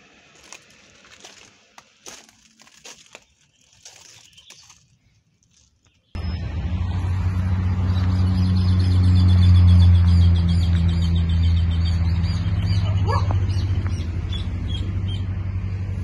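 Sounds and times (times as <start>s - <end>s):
birds chirping: 0.8s - 6.6s, 7.6s - 15.4s.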